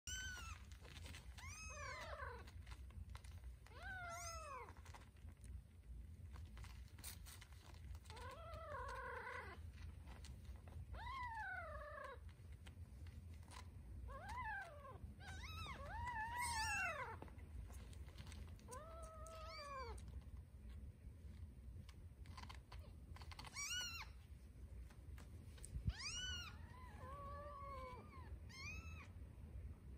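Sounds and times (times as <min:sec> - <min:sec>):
kittens crying: 0:00.1 - 0:02.7, 0:03.6 - 0:05.0, 0:13.5 - 0:17.3, 0:22.4 - 0:24.2, 0:25.9 - 0:29.1.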